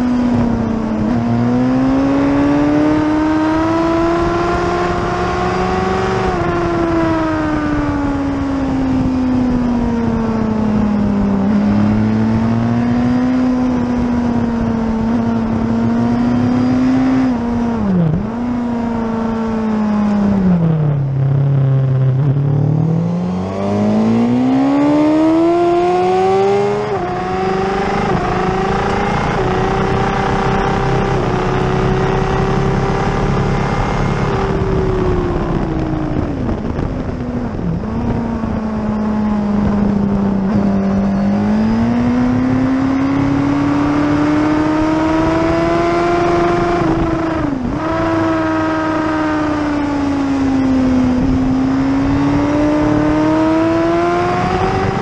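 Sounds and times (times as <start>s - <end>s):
motorcycle engine revving: 0.0s - 55.0s
wind rush over microphone: 0.0s - 55.0s.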